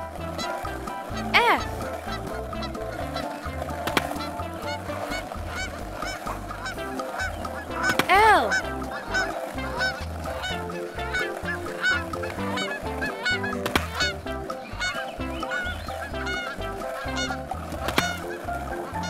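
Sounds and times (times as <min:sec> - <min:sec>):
upbeat children's music: 0:00.0 - 0:19.0
cartoon bird honking: 0:00.2 - 0:19.0.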